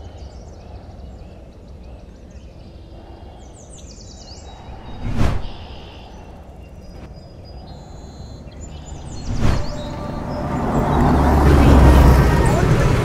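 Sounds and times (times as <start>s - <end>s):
small birds chirping: 0.0s - 13.0s
steady outdoor hum: 0.0s - 13.0s
brief whoosh: 4.6s - 6.3s, 8.8s - 12.4s.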